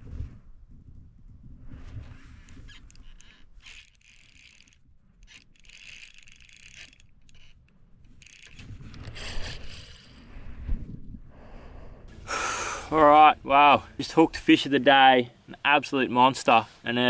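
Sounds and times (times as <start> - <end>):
fishing reel drag clicking: 2.3 - 10.4.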